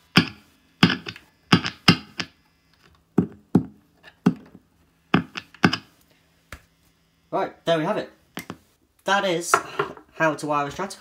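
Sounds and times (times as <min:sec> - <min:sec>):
faint amp hum: 0:00.0 - 0:11.0
screwdriver tapping guitar pickups: 0:00.2 - 0:02.3, 0:04.3 - 0:05.9.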